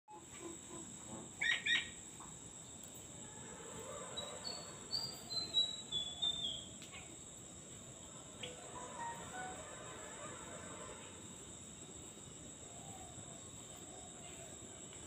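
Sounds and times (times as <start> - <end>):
high insect trill: 0.1 - 15.0
magpie-robin whistled song: 4.2 - 6.8.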